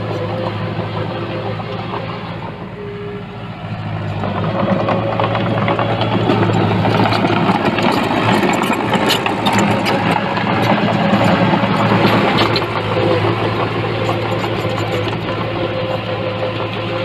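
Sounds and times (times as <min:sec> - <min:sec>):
diesel engine running: 0:00.0 - 0:17.0
clicks and clanks: 0:04.1 - 0:17.0.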